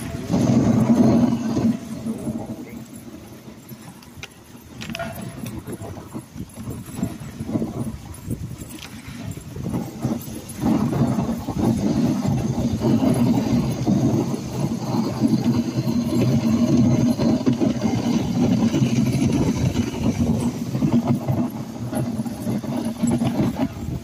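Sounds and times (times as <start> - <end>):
sled runners rumbling on snow: 0.0 - 24.0.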